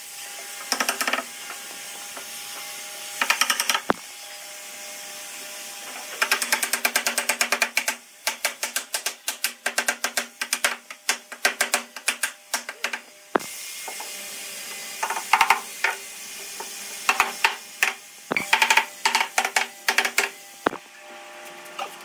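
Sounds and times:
rapid mechanical clicking: 6.2 - 13.0.

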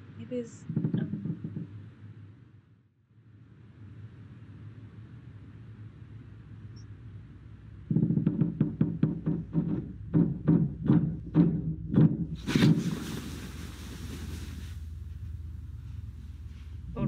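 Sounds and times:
low rapid knocking beat: 7.9 - 12.4
hiss: 12.4 - 15.0.

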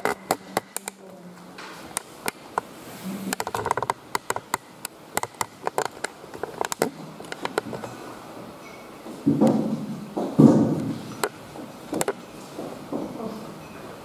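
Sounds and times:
low murmur of voices: 9.4 - 14.0.

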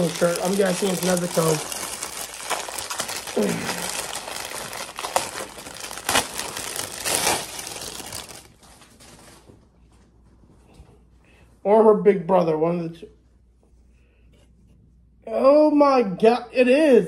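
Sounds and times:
plastic bag crinkling and rustling: 0.0 - 9.6.

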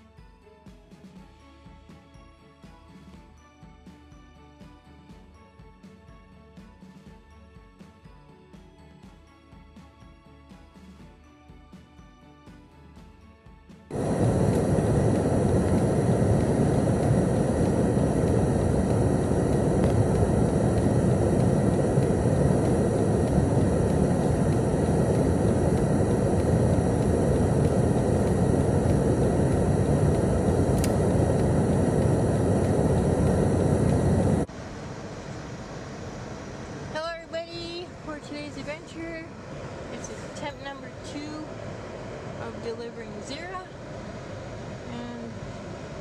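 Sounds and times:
car road and wind noise: 13.9 - 34.5.

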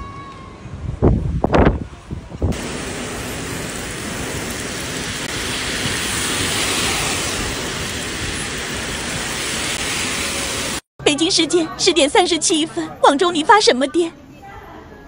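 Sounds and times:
heavy rain pouring: 2.4 - 10.9.

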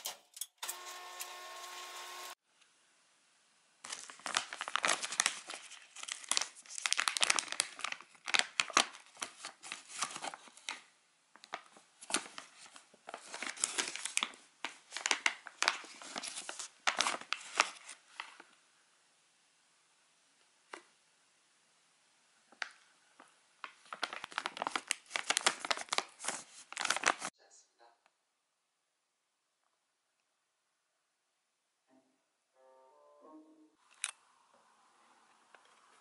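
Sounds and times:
snack pouch crinkling: 3.9 - 10.8, 23.7 - 27.3.

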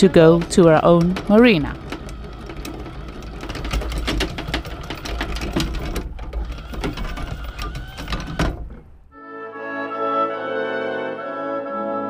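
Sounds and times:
anchor chain links clicking: 0.0 - 8.9
anchor windlass humming: 0.0 - 9.2.

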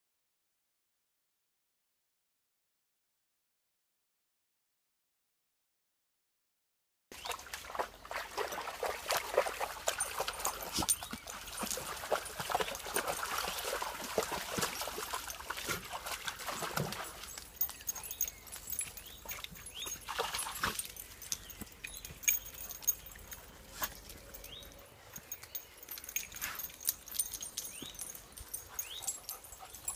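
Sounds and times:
dogs splashing through water: 7.2 - 29.9
running water: 7.2 - 29.9.

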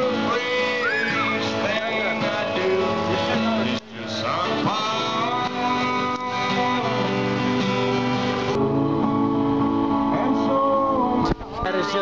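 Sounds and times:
person singing: 0.0 - 7.6, 8.5 - 12.0
strummed acoustic guitar: 0.0 - 12.0.

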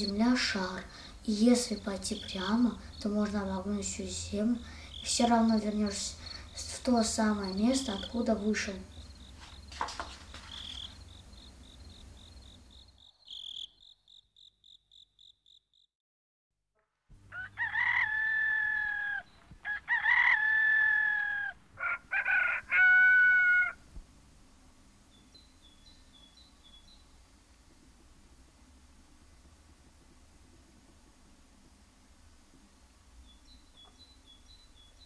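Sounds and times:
crickets chirping: 0.9 - 3.4, 4.6 - 15.8
faint bird chirps: 10.4 - 15.6, 33.2 - 35.0
rooster crowing: 17.3 - 23.8.

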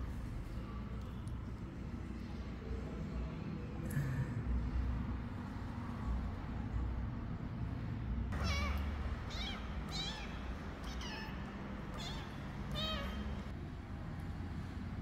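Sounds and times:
kitten meowing: 8.4 - 13.5.

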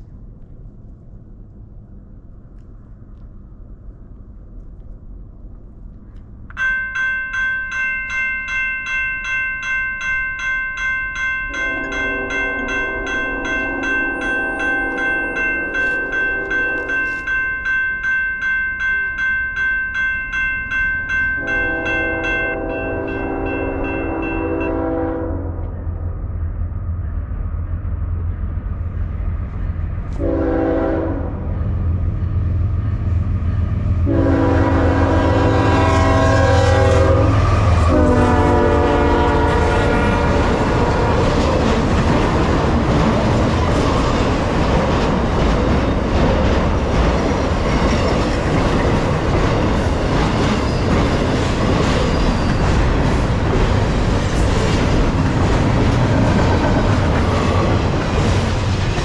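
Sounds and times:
diesel locomotive rumbling: 0.0 - 59.0
train horn blasts: 11.5 - 17.3, 21.4 - 25.8, 30.1 - 31.6, 34.0 - 41.3
freight cars clattering past: 39.6 - 59.0.

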